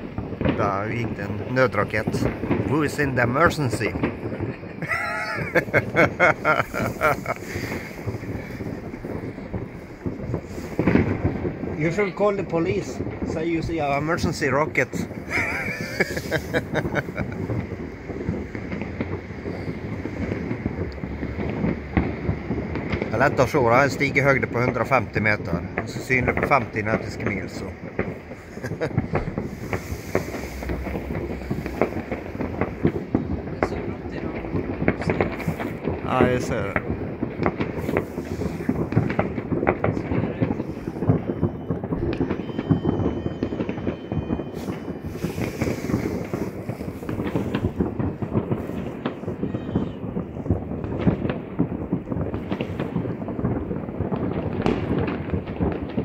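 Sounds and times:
fireworks rumbling crackle: 0.0 - 56.0
sharp firework cracks: 0.0 - 56.0
low rumble: 3.9 - 12.0, 26.6 - 42.2.

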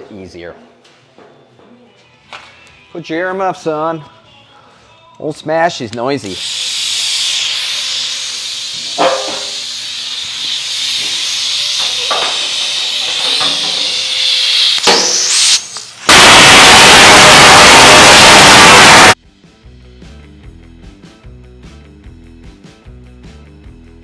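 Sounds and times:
air hiss: 6.2 - 19.2
pneumatic hammer hammering: 8.7 - 15.5.

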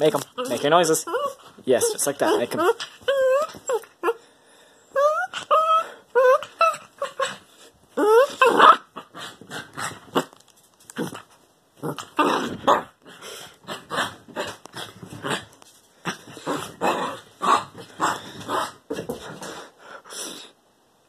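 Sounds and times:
small dog yapping: 0.4 - 4.2, 8.0 - 9.1.

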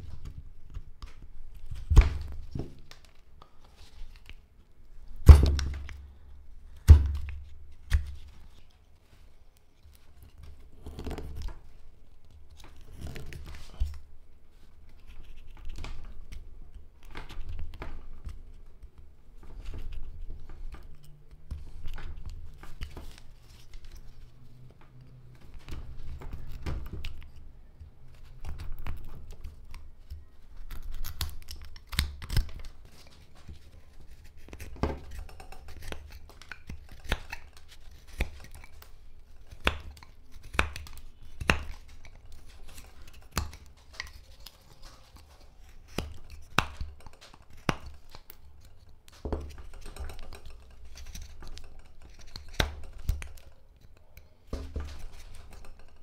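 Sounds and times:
knife scraping wood: 30.7 - 56.0.

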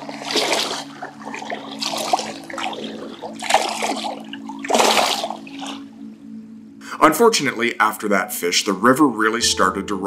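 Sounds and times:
river water splashing: 0.0 - 5.9.

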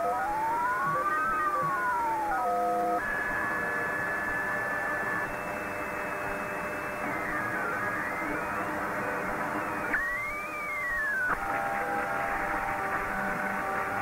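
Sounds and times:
electronic tones sliding in pitch: 0.0 - 8.7
radio hiss: 0.2 - 14.0.

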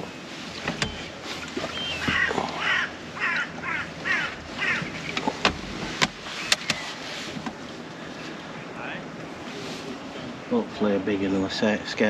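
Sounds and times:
crow cawing: 2.0 - 5.0.

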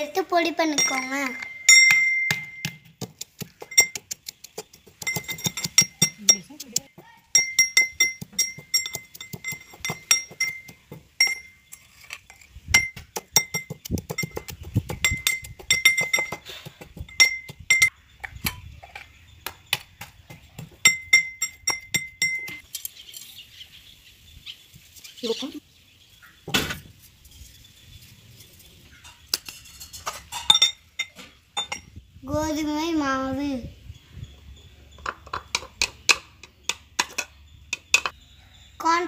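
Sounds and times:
metal pestle clinking in mortar: 0.7 - 4.2, 5.0 - 19.1, 20.8 - 22.6, 29.1 - 31.9.

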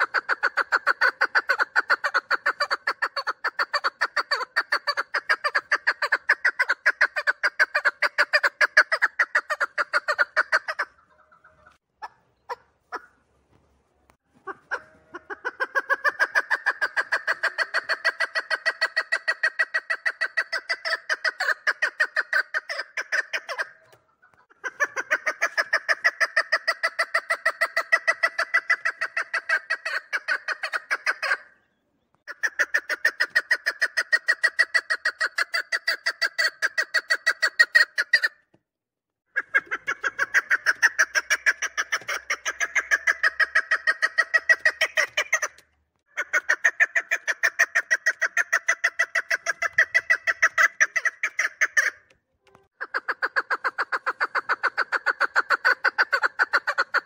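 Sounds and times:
partridge clucking: 39.4 - 57.0.

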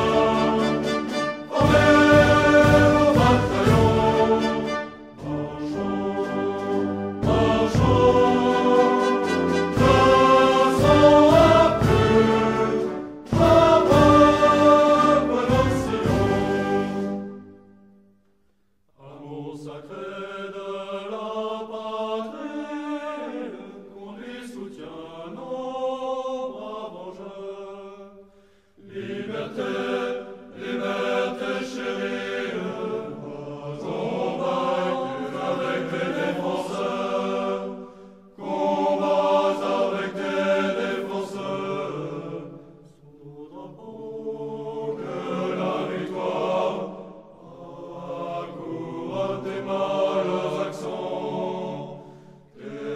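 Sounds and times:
choir singing slow chords: 0.0 - 52.9.

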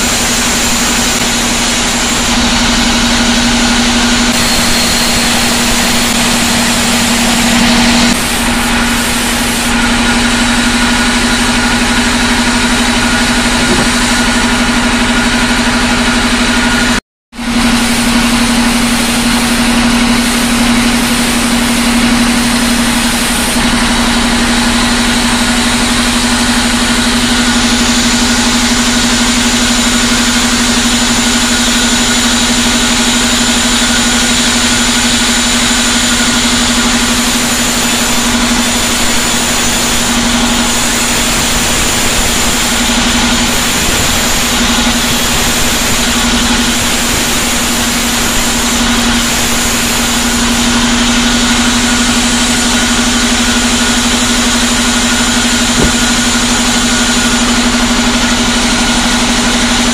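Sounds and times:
band sawmill humming: 0.0 - 31.4, 32.5 - 59.9.

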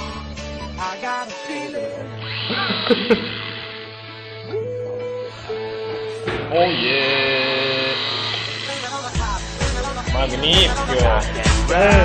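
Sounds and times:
background music: 0.0 - 12.0
small electric motor whirring: 2.1 - 9.2.

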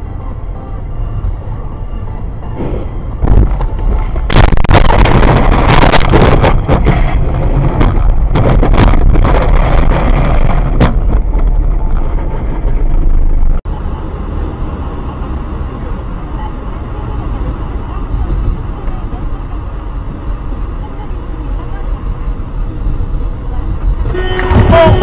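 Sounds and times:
tyres rumbling on dirt and gravel: 0.0 - 13.9
suspension thumps and knocks: 3.2 - 13.6.

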